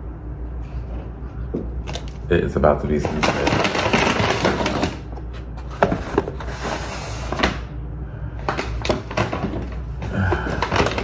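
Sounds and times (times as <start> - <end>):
low steady hum: 0.0 - 11.0
packaging rustling: 2.9 - 7.7, 8.4 - 11.0
packaging knocks and clicks: 3.0 - 6.4, 8.4 - 11.0.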